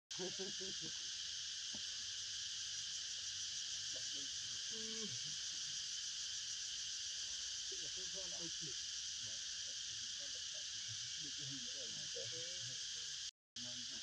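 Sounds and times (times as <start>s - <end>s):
high-pitched insect chorus: 0.1s - 14.0s.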